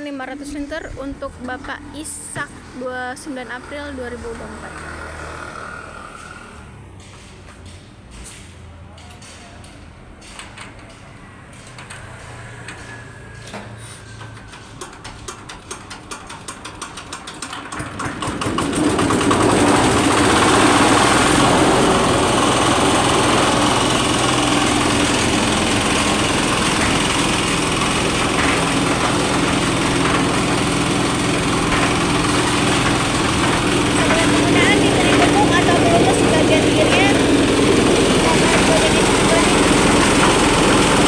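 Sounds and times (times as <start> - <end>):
diesel engine running: 18.2 - 41.0.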